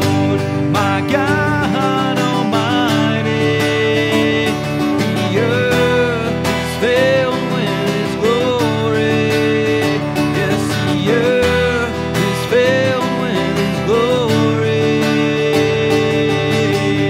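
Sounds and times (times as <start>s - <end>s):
man singing worship song: 0.0s - 17.0s
strummed acoustic guitar: 0.0s - 17.0s.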